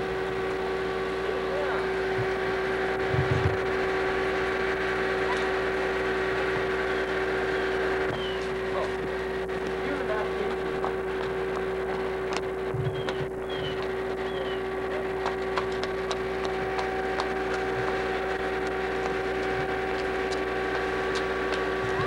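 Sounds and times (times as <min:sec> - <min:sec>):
steady tonal hum: 0:00.0 - 0:22.0.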